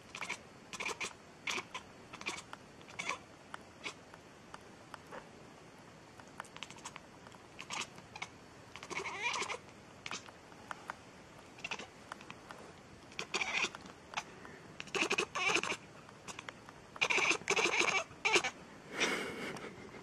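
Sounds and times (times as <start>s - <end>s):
cat meowing: 7.6s - 10.2s, 13.1s - 13.8s, 17.0s - 18.6s.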